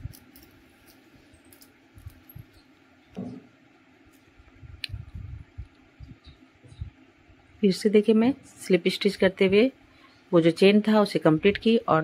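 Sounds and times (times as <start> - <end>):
crochet hook handling sounds: 0.0 - 3.4.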